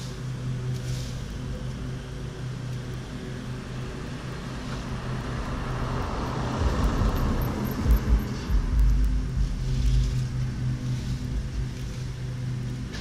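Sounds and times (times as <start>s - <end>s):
small engine droning: 0.0s - 13.0s
low rumbling: 5.2s - 13.0s.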